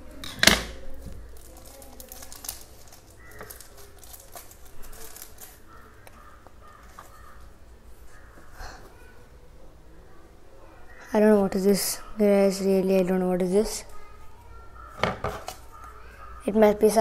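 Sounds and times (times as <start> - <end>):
plastic packaging crinkling: 0.8 - 7.4
paper strips rustling: 0.9 - 7.4.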